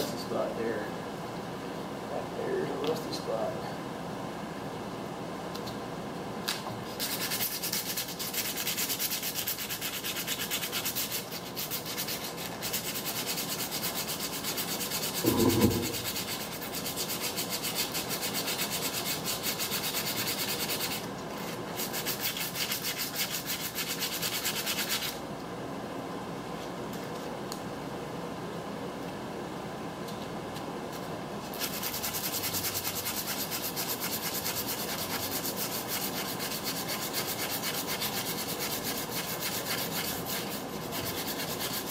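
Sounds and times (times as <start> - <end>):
sandpaper scratching on steel: 7.0 - 25.2, 31.5 - 41.9
low thud: 15.2 - 16.1.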